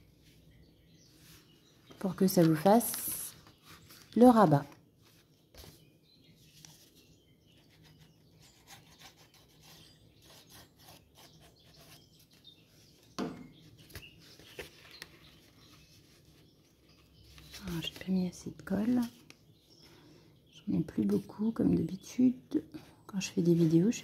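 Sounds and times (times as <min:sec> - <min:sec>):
paper rustling and rubbing: 0:02.3 - 0:13.1, 0:13.8 - 0:18.1.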